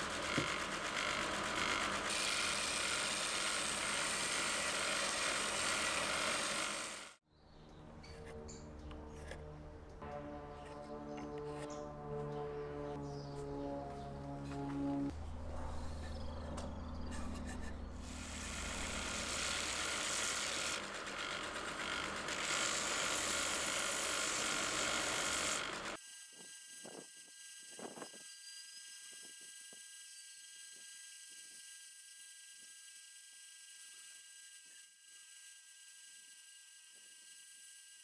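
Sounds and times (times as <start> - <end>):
belt sander sanding wood: 0.0 - 7.2, 16.9 - 26.0
high whine: 9.7 - 19.3.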